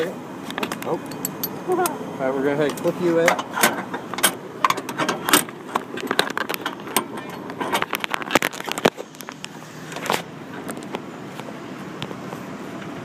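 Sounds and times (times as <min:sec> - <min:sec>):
metallic jangle: 0:01.0 - 0:01.8.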